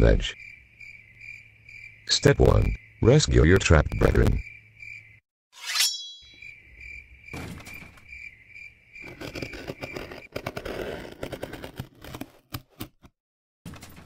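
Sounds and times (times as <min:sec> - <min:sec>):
crickets chirping: 0:00.0 - 0:05.2, 0:06.3 - 0:10.3.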